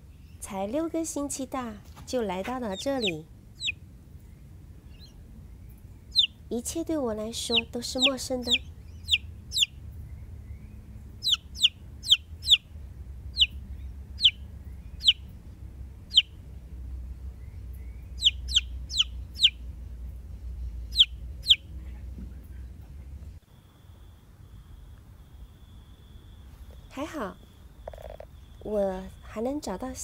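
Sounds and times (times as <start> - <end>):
steady low rumble: 0.0 - 30.0
chick peeping: 2.4 - 3.8, 4.9 - 5.2, 6.1 - 9.8, 11.2 - 12.7, 13.3 - 13.6, 14.2 - 15.3, 16.1 - 16.3, 17.7 - 19.6, 20.9 - 22.1.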